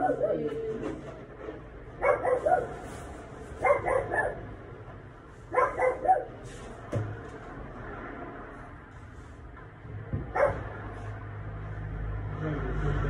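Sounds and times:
dog barking: 0.0s - 0.5s, 2.0s - 2.8s, 3.6s - 4.4s, 5.5s - 6.3s, 10.3s - 10.7s
knock: 10.1s - 10.6s.

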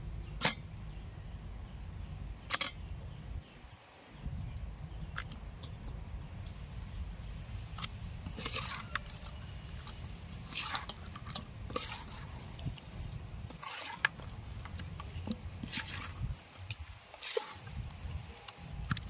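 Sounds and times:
low steady rumble: 0.0s - 17.0s
wet squelching of fish in paste: 7.7s - 19.0s.

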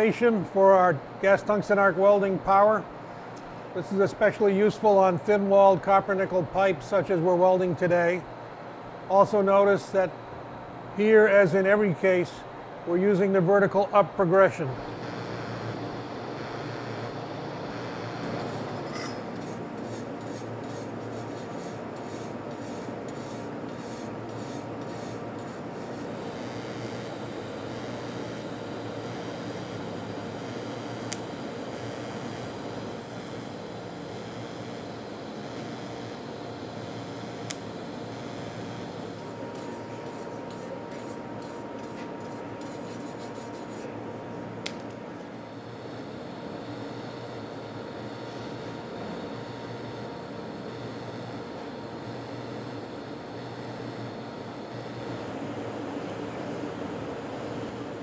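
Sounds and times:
fabrication shop background noise: 0.0s - 58.0s
workshop noise: 13.0s - 45.4s.

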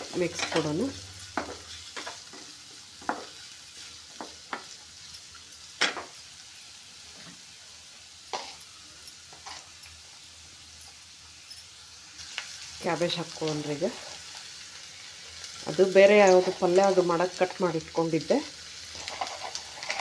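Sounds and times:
vegetables sizzling in oil: 0.0s - 20.0s
wooden spatula scraping a pan: 8.3s - 8.6s, 9.3s - 9.7s, 18.9s - 20.0s.

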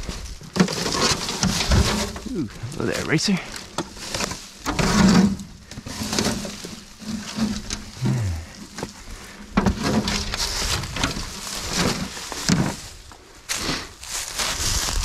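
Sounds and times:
dry leaves crunching underfoot: 10.2s - 15.0s.

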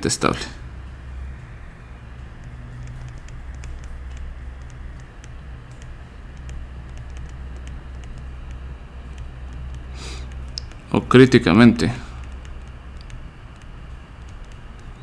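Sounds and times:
steady low hum: 0.0s - 15.0s
stylus tapping on tablet screen: 2.4s - 10.9s.

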